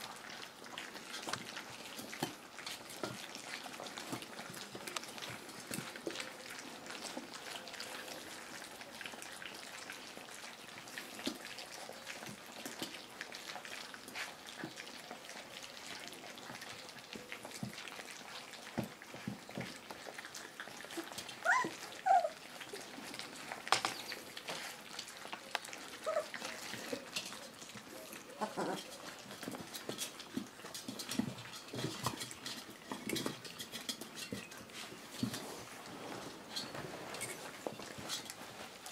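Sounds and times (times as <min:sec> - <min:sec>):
puppies lapping and chewing: 0:00.0 - 0:38.9
puppy squeaks: 0:21.4 - 0:22.4, 0:26.0 - 0:26.4.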